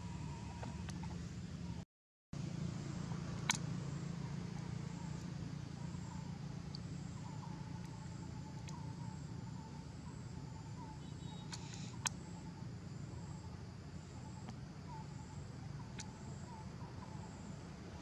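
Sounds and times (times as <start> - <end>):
faint steady whine: 0.0 - 1.8, 2.4 - 18.0
low outdoor rumble: 0.0 - 1.8, 2.4 - 18.0.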